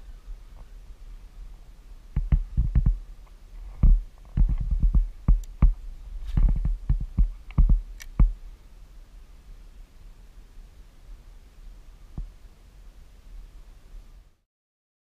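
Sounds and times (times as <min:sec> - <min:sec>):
dull knocks and thumps: 0:02.2 - 0:03.0, 0:03.8 - 0:08.4.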